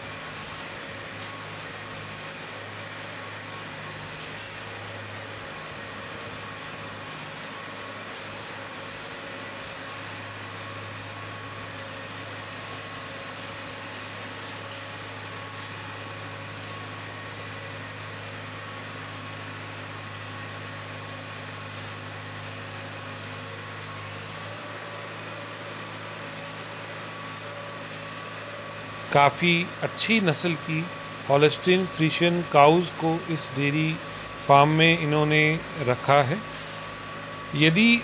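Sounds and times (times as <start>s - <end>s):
feed mixer machine hum: 0.0s - 38.0s
constant held tones: 37.5s - 38.0s.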